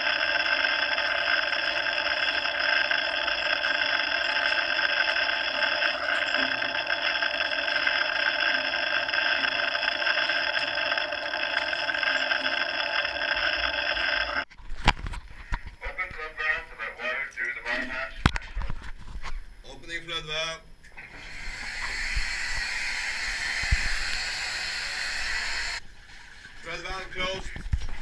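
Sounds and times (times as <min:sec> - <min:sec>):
rushing hissing mechanical noise: 0:21.1 - 0:25.8.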